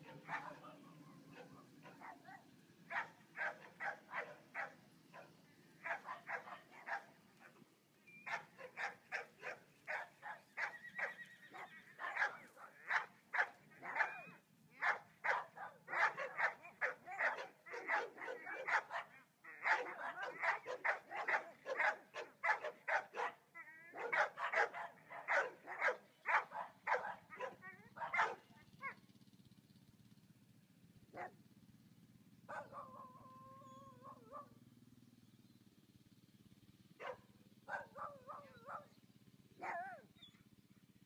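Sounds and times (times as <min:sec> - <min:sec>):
dog barking rapidly: 0:00.0 - 0:00.7, 0:01.4 - 0:07.1, 0:08.3 - 0:29.0, 0:32.5 - 0:33.0, 0:37.0 - 0:38.9, 0:39.6 - 0:40.0.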